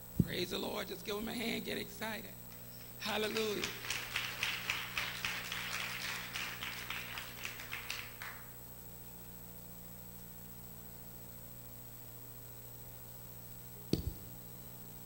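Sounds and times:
faint steady hum: 0.0s - 15.0s
congregation applauding: 2.8s - 8.6s.

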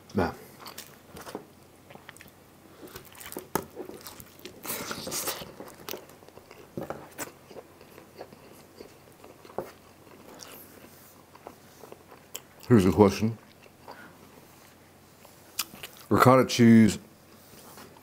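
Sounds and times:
crunchy chewing: 0.5s - 12.8s.

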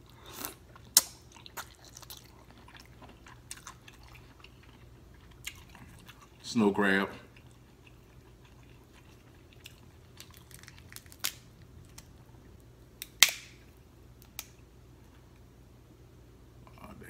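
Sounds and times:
crab shell crackling: 7.5s - 12.2s
sharp shell cracks: 13.0s - 13.6s.

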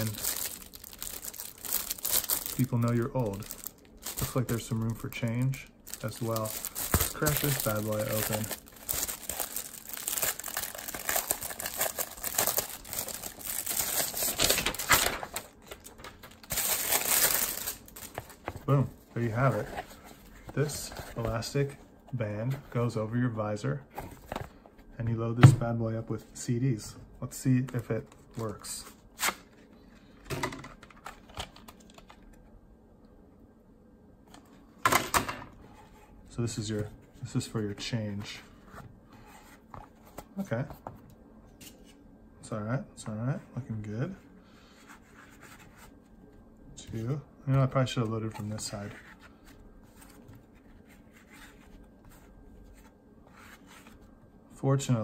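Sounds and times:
plastic wrap crinkling: 0.0s - 18.9s.

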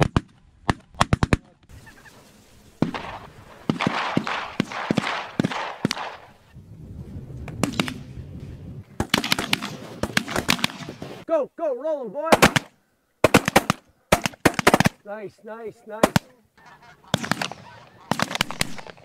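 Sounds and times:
waterfowl calling: 1.7s - 3.8s, 15.6s - 19.0s
shotguns firing: 2.8s - 6.4s, 7.5s - 8.1s, 9.0s - 11.2s, 12.3s - 15.0s, 16.0s - 16.3s, 17.0s - 19.0s.

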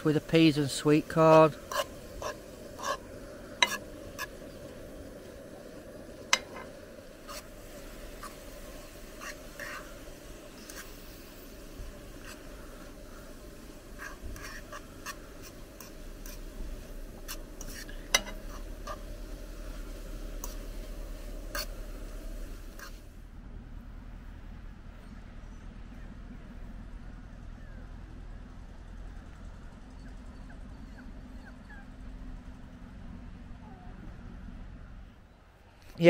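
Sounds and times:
gas stove hiss: 0.0s - 23.3s
utensil scraping a pan: 0.2s - 23.0s.

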